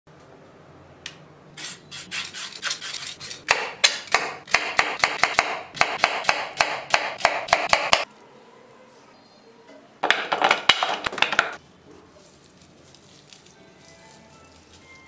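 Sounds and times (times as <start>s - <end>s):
cucumber being peeled: 12.0s - 15.0s.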